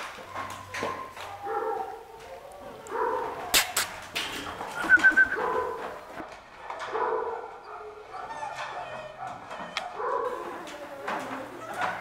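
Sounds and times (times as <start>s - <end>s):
puppies yelping and whining: 7.4s - 12.0s.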